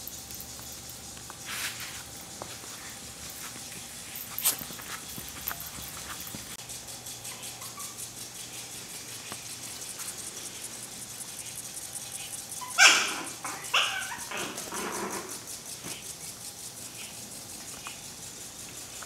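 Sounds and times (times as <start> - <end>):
puppies barking: 2.2 - 9.4, 12.0 - 16.0.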